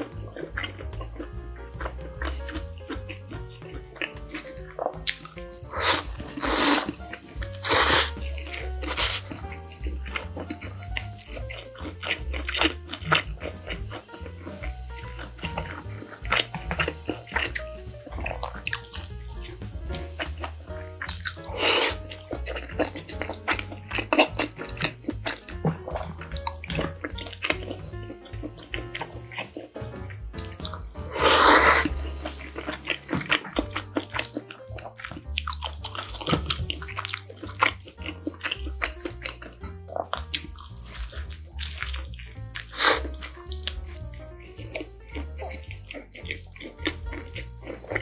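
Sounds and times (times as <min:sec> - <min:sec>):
background music: 0:00.0 - 0:48.0
slurping noodles: 0:00.0 - 0:48.0
wet chewing and lip smacks: 0:00.0 - 0:48.0.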